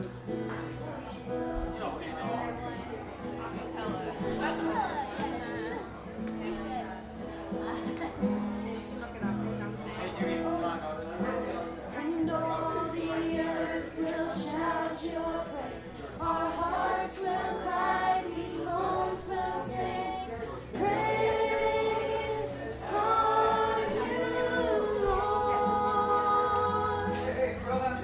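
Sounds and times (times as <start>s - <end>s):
acoustic guitar: 0.0s - 28.0s
group of voices singing: 11.9s - 28.0s.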